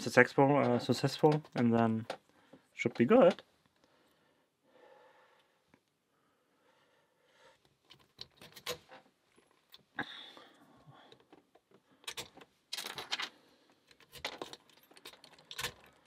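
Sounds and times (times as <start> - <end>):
lock pick clicking and scraping: 7.6 - 9.8, 11.1 - 16.0
padlock rattling: 7.8 - 9.0, 12.0 - 16.0.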